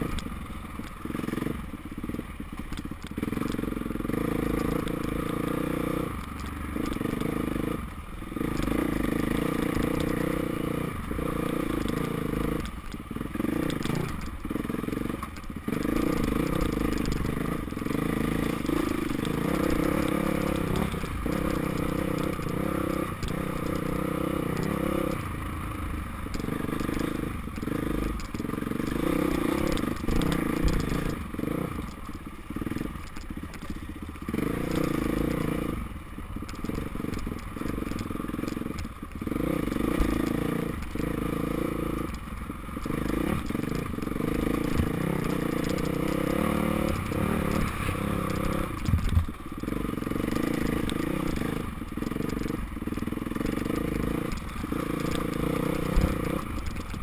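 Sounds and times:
gravel scraping under tyres: 0.0 - 57.0
dirt bike engine revving: 1.0 - 2.2, 3.2 - 31.9, 34.2 - 35.9, 36.6 - 42.2, 42.8 - 56.9.

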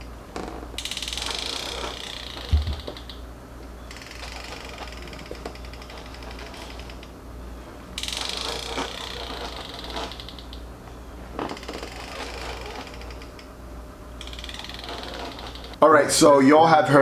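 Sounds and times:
rapid mechanical clicking: 14.2 - 15.8.

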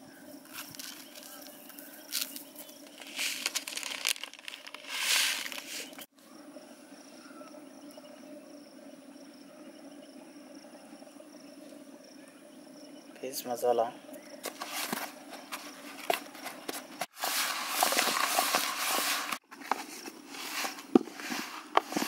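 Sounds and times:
seeds pouring into plastic bowl: 0.5 - 6.0, 17.1 - 19.4, 20.4 - 22.0.

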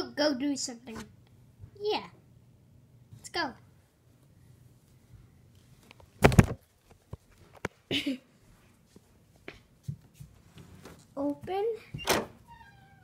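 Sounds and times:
handling noises of plush toys: 3.8 - 11.9.

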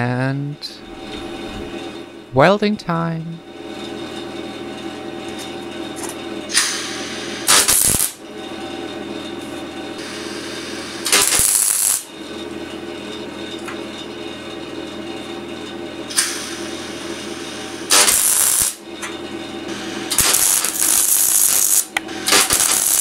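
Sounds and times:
steady hum: 0.0 - 23.0
welding arc bursts: 6.6 - 8.2, 10.0 - 12.1, 16.1 - 18.8, 19.7 - 23.0.

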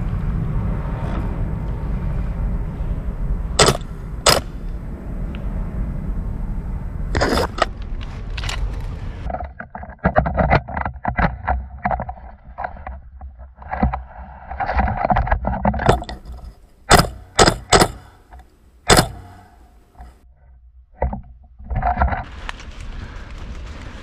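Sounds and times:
airsoft rifle shots: 3.6 - 4.7, 16.9 - 18.2, 18.9 - 19.7
sharp crack: 3.6 - 4.8, 16.9 - 20.1
rustling leaves and gear: 7.1 - 20.2, 21.9 - 24.0.

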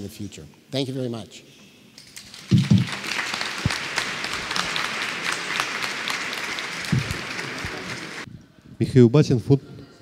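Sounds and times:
audience applauding: 2.2 - 8.3.

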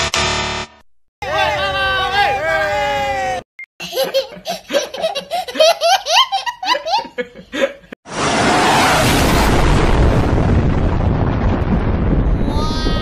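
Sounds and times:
baby laughing: 3.8 - 7.2.

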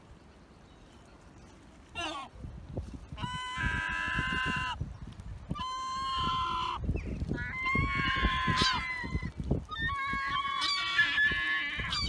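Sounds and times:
young gull squawking: 9.8 - 12.0.

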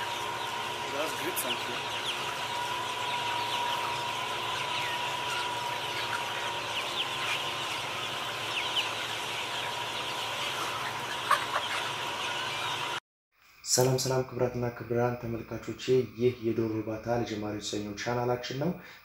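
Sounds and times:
chickens calling: 0.0 - 13.0
steady background hum: 0.0 - 13.0.

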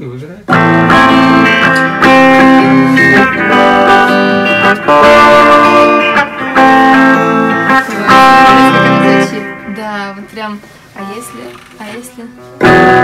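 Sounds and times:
electric guitar chords: 0.5 - 13.0.

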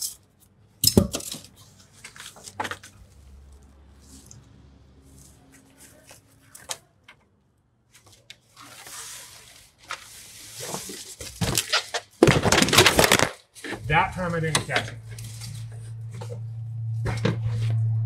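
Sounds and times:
rustling: 7.9 - 17.8.

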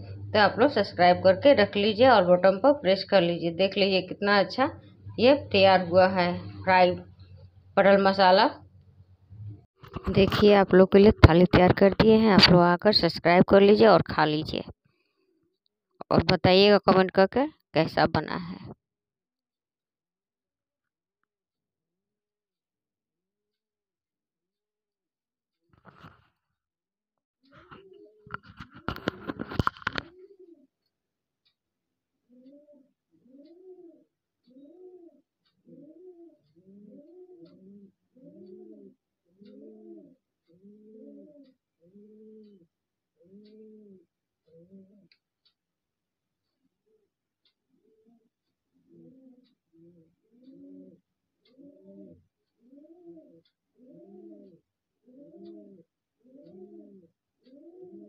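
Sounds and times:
pigeon cooing: 4.6 - 7.5, 27.5 - 30.7, 32.3 - 45.2, 47.7 - 58.0.

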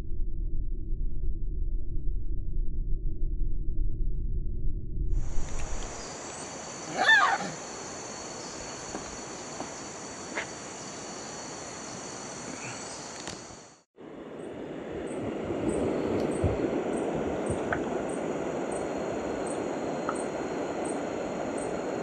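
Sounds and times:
high-pitched insect drone: 5.2 - 13.8
wavering animal call: 6.8 - 7.7.

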